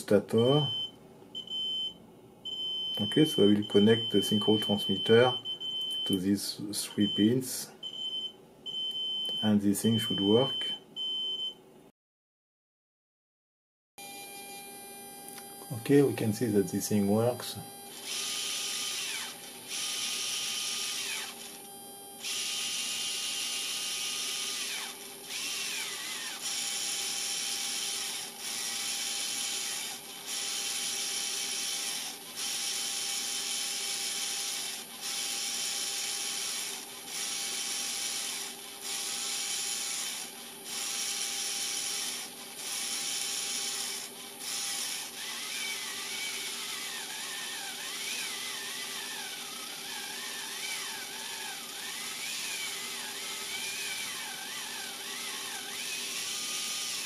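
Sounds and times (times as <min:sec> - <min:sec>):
electrical hum: 0:14.0 - 0:57.0
small motor whirring: 0:17.6 - 0:57.0.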